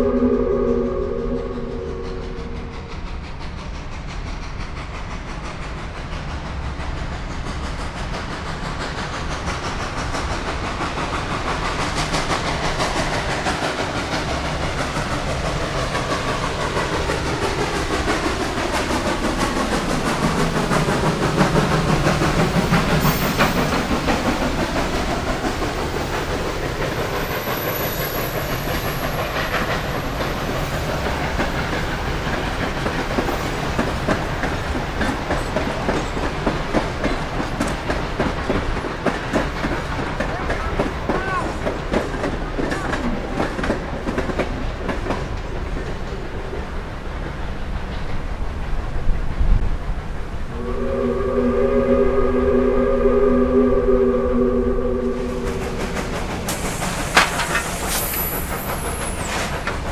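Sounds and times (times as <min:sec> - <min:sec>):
steam whistle blast: 0:00.0 - 0:03.1, 0:50.5 - 0:58.5
steam train passing: 0:00.0 - 0:59.9
steam hiss: 0:01.8 - 0:43.0, 0:47.4 - 0:59.9
wheels clacking over rail joints: 0:55.6 - 0:59.9.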